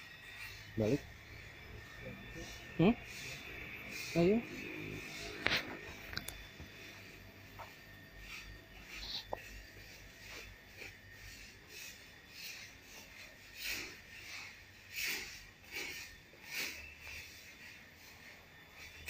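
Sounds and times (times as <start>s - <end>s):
scraping on leaf-strewn path: 2.3s - 6.1s.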